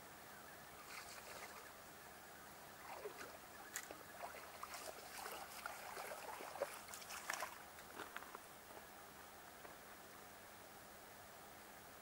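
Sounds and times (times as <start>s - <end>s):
faint low hum: 0.0s - 12.0s
water splashing at shore: 2.8s - 7.6s.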